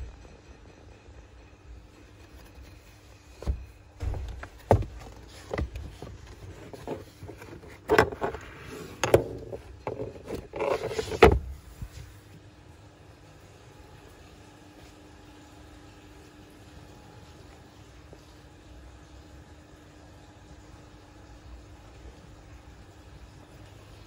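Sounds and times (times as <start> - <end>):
seat scuffing: 2.5 - 12.2
car seat knocks and clicks: 3.3 - 8.4, 9.0 - 12.0.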